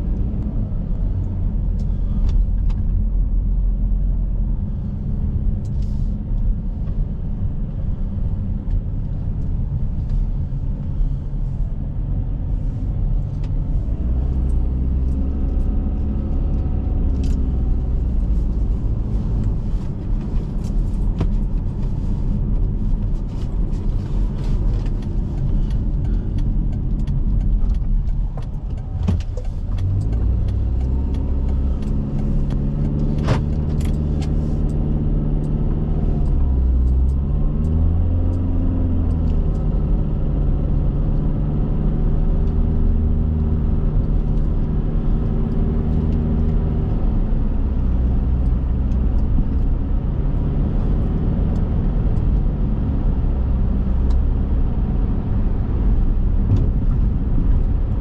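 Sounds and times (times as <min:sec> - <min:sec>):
road rumble: 0:00.0 - 0:58.0
car engine accelerating: 0:07.3 - 0:58.0
light rattling clicks: 0:22.6 - 0:39.9.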